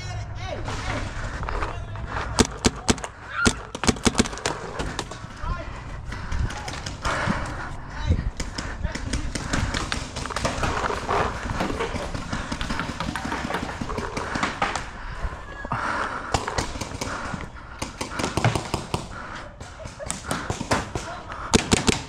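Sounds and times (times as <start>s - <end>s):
rumble of movement: 0.3s - 17.8s
paintball markers popping: 2.4s - 5.2s.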